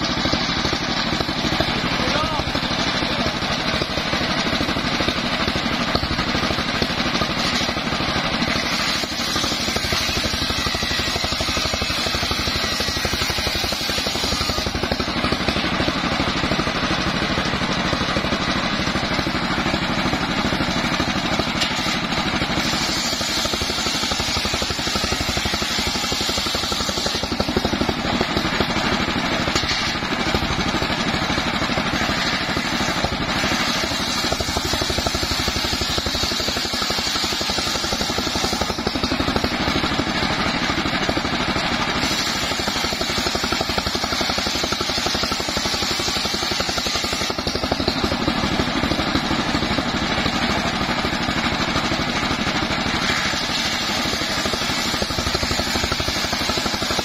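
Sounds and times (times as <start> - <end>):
engine drone: 0.0 - 57.0
saw blade cutting hiss: 8.4 - 15.1, 21.6 - 27.8, 31.9 - 39.2, 42.0 - 48.0, 53.0 - 57.0.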